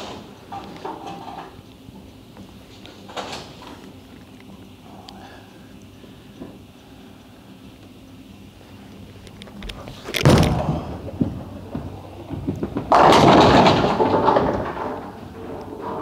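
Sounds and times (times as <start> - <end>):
bowling ball rolling: 10.0 - 16.0
bowling pins crashing: 10.2 - 16.0
bowling ball thud on lane: 10.3 - 15.2.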